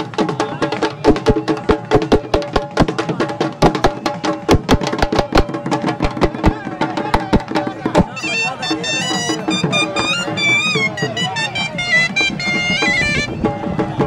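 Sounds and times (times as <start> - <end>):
drum beaten fast: 0.0 - 14.0
steady held melody: 7.3 - 14.0.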